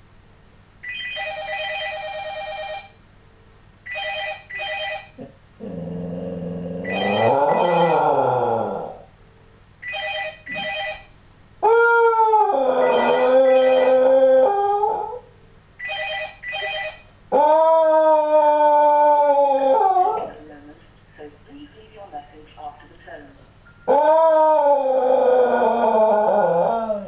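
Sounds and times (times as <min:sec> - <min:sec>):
telephone ringing: 0:00.8 - 0:03.0, 0:03.9 - 0:05.2, 0:06.9 - 0:08.0, 0:09.8 - 0:11.2, 0:15.8 - 0:17.2
dog howling: 0:05.7 - 0:09.1, 0:11.6 - 0:15.3, 0:17.3 - 0:20.4, 0:23.9 - 0:27.0.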